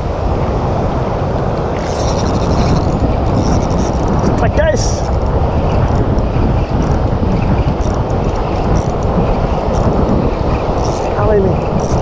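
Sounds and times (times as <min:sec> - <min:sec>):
strong wind buffeting microphone: 0:00.0 - 0:12.0.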